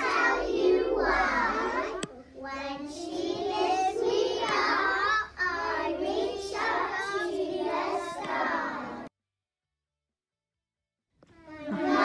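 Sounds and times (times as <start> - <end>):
children singing: 0.0 - 9.1, 11.6 - 12.0.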